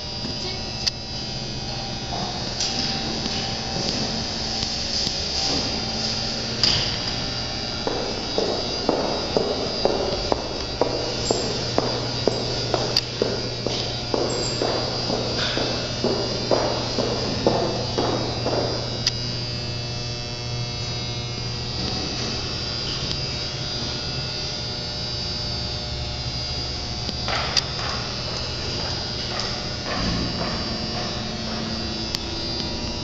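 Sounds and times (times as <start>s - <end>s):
low electrical hum: 0.0s - 33.0s
footsteps: 0.1s - 19.6s, 27.2s - 33.0s.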